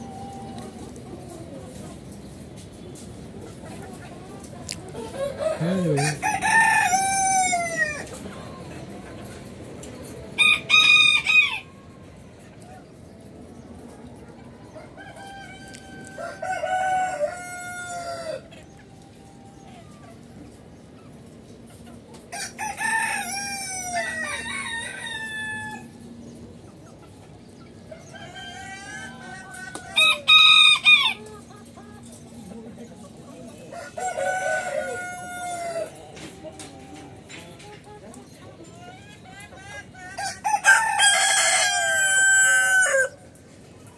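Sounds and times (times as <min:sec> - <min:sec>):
roosters crowing: 0:04.9 - 0:08.6, 0:10.3 - 0:12.1, 0:14.6 - 0:19.8, 0:22.3 - 0:26.2, 0:27.8 - 0:31.5, 0:33.5 - 0:37.2, 0:38.9 - 0:43.7
rooster crowing: 0:05.2 - 0:08.0, 0:15.0 - 0:18.5, 0:33.7 - 0:35.9, 0:40.2 - 0:43.2.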